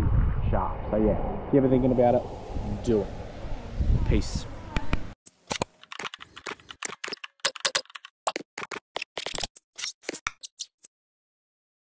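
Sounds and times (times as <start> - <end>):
keyboard typing: 5.4 - 10.9.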